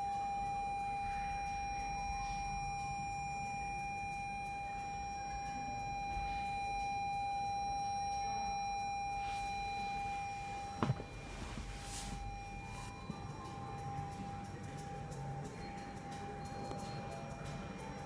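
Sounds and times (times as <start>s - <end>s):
steady electronic beeper tone: 0.0s - 18.0s.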